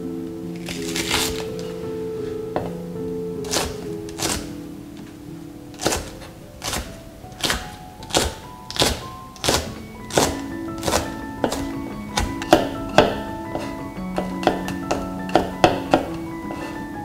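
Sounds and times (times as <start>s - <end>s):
light background music: 0.0s - 17.0s
knife chopping on cutting board: 5.8s - 16.8s.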